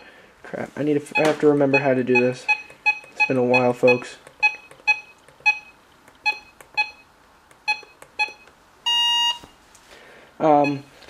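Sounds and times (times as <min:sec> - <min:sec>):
short key-press beeps: 0:01.2 - 0:09.4
long loud beep: 0:07.7 - 0:09.4.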